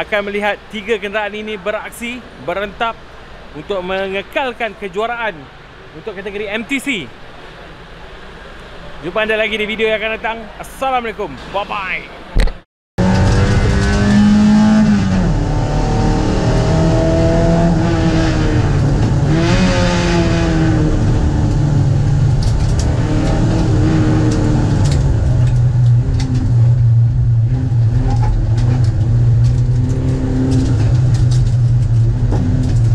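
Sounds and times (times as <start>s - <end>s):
race car engine from inside cabin: 13.0s - 32.9s.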